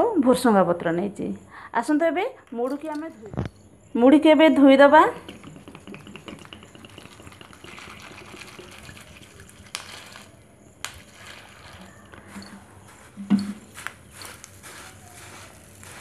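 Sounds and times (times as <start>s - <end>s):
water trickling into bowl: 5.0s - 13.0s.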